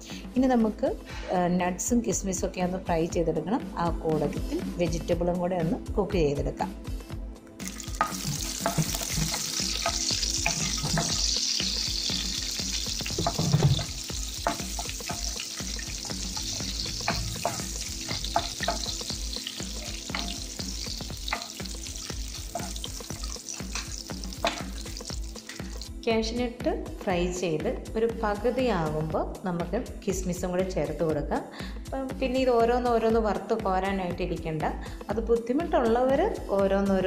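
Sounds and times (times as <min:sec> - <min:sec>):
nuts sizzling in hot oil: 0:07.6 - 0:25.9.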